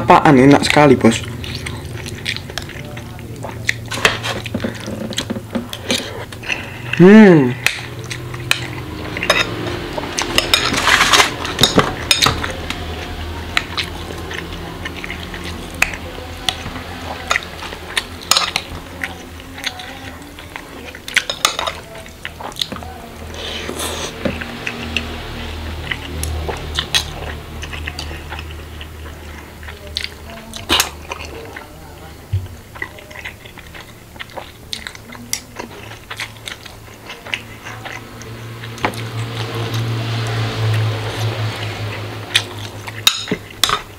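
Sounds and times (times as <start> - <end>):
chewing: 0.0 - 43.9
cutlery clinking on glass bowl: 8.5 - 9.6.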